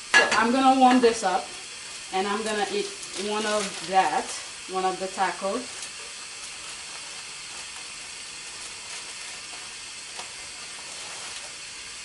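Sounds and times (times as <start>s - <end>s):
gas burners hissing: 0.0s - 12.0s
plastic bag crinkling: 2.0s - 11.9s.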